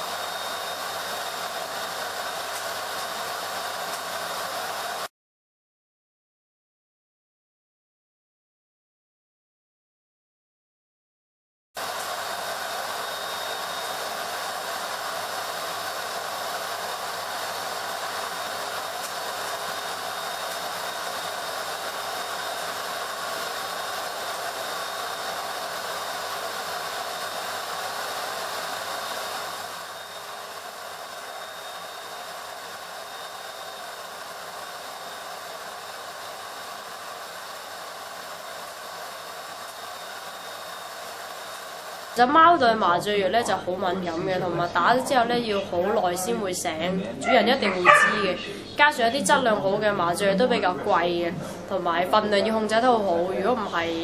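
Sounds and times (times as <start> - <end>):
grooming dryer blowing air: 0.0 - 5.1, 11.8 - 42.3, 47.6 - 48.7.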